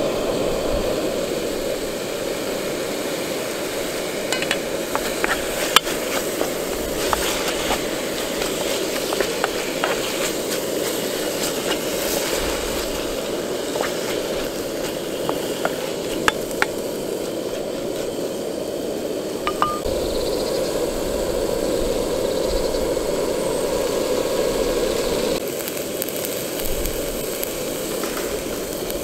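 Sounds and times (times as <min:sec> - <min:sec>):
steady rushing noise: 0:00.0 - 0:25.6
chicken sizzling in frying pan: 0:01.0 - 0:18.0, 0:23.7 - 0:29.0
wooden spoon stirring: 0:04.3 - 0:16.7
popping fat: 0:04.4 - 0:17.0.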